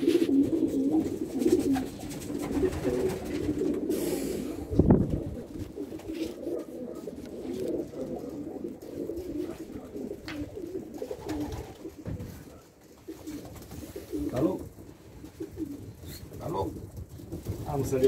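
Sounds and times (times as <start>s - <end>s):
pigeons cooing: 0.0s - 18.0s.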